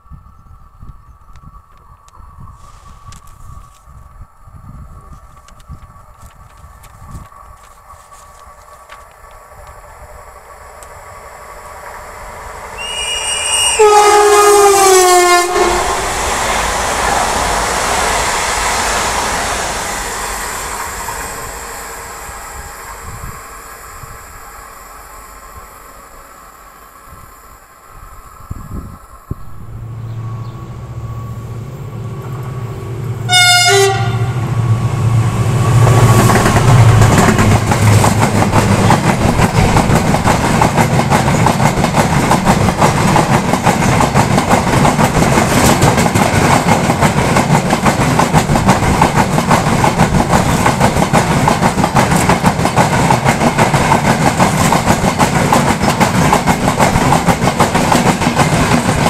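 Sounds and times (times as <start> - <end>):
train horn blast: 12.8 - 16.2, 29.6 - 35.9
low hum: 29.3 - 38.8
freight train wagons rattling: 36.2 - 59.0.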